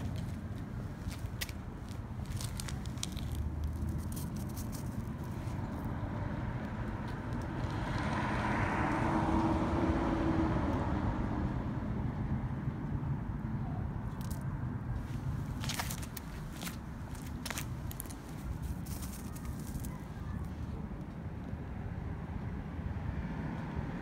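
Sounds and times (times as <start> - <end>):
handheld camera handling rumble: 0.0 - 5.7, 14.2 - 20.1
vehicle passing: 0.0 - 12.6, 15.0 - 20.8.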